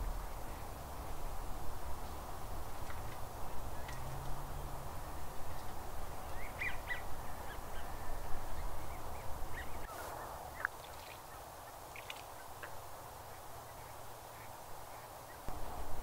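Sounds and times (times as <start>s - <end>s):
outdoor background noise: 0.0s - 16.0s
birds calling: 3.7s - 15.6s.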